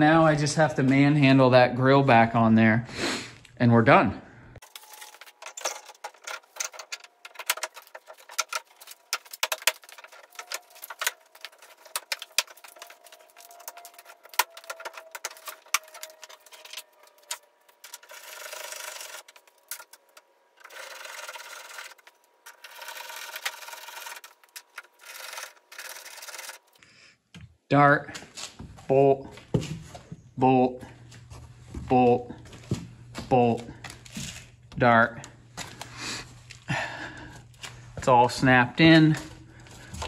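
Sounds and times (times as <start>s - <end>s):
plastic rubbing and scraping: 4.6s - 26.8s.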